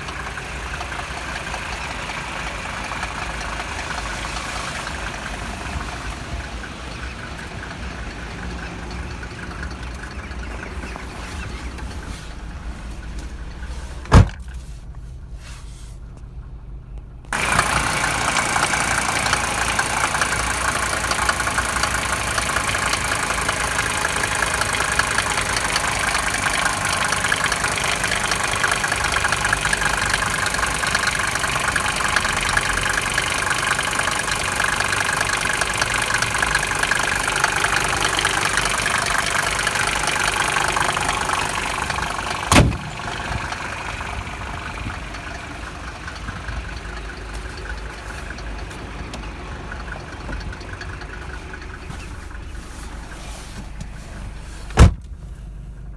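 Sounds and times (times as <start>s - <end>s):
diesel engine idling: 0.0s - 55.9s.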